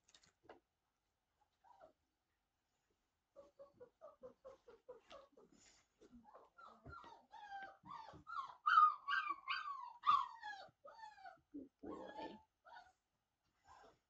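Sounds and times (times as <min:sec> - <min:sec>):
puppy whining: 0:03.4 - 0:05.5, 0:06.2 - 0:13.0.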